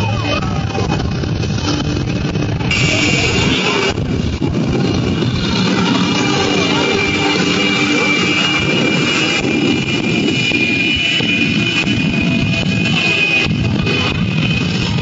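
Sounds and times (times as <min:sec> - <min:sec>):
jet engine roaring with whine: 0:00.0 - 0:15.0.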